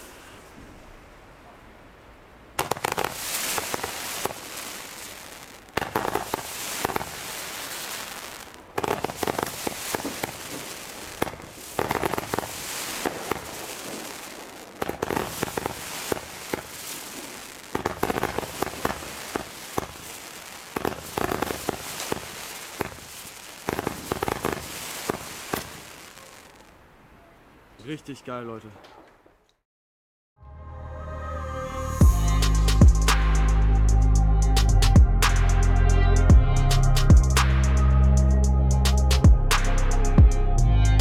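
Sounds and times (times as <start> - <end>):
crackling of bursting stars: 2.6 - 26.7.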